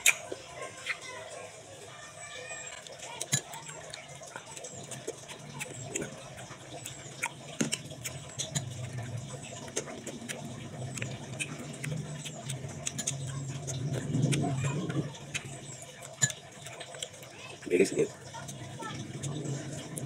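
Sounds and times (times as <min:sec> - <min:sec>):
lip smacks: 0:00.0 - 0:00.3
wet chewing: 0:00.0 - 0:01.1, 0:02.6 - 0:20.0.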